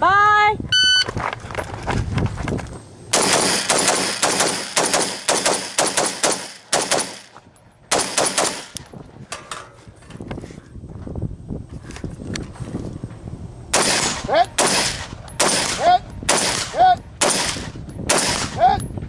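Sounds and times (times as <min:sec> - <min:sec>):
rifle firing rapid shots: 0:03.1 - 0:08.8, 0:13.7 - 0:18.6.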